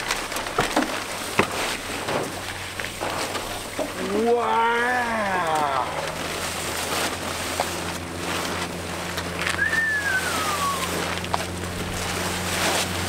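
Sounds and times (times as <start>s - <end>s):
plastic tarp rustling: 0.0s - 13.0s
downward gliding whistle tone: 9.5s - 11.1s.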